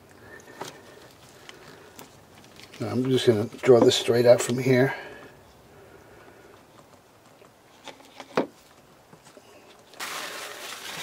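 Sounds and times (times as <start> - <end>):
paper rustling: 9.7 - 11.0.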